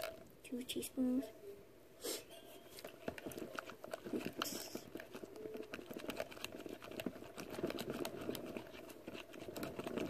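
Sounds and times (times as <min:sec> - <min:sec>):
stick stirring sticky slime: 0:02.7 - 0:10.0.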